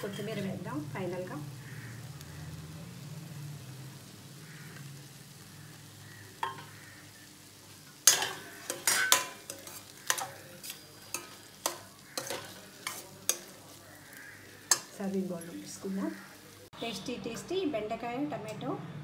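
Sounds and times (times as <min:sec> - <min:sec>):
spoon scraping and clinking pan: 0:00.0 - 0:00.5, 0:06.4 - 0:06.8, 0:08.0 - 0:13.6, 0:14.6 - 0:15.0.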